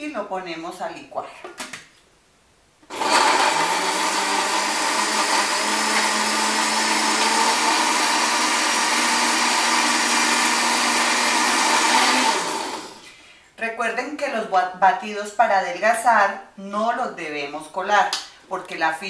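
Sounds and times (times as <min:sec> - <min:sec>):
blender whirring: 0:02.9 - 0:13.0.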